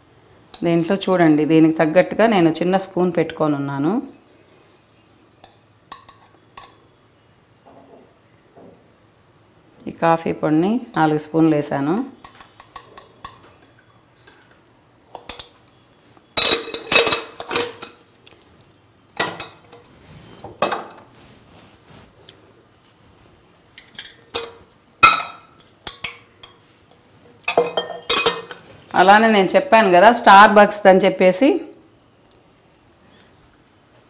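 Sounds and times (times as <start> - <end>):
steel kitchenware clinking: 5.4 - 6.8, 11.8 - 13.6, 16.4 - 18.0, 23.8 - 26.6, 27.4 - 28.6.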